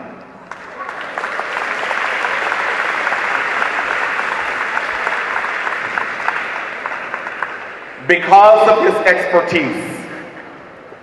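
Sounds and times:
audience applauding: 0.4 - 8.0.

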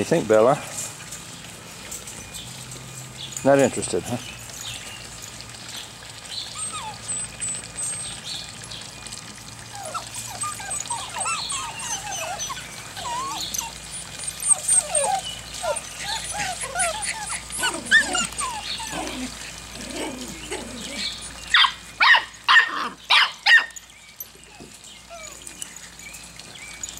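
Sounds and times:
puppies whining and yipping: 5.9 - 26.9
dog barking: 21.6 - 23.7.

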